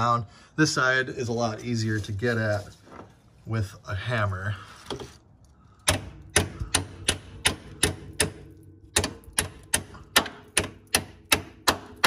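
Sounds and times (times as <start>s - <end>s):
hammer striking metal: 5.9s - 12.0s.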